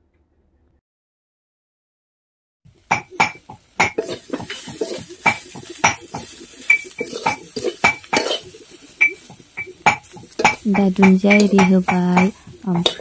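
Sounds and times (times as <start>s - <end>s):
metal spatula scraping a wok: 3.2s - 13.0s.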